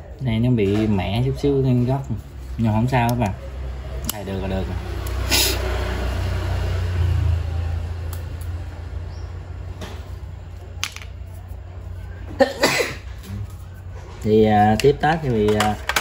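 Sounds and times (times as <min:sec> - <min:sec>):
vehicle passing with low rumble: 0:01.4 - 0:12.4.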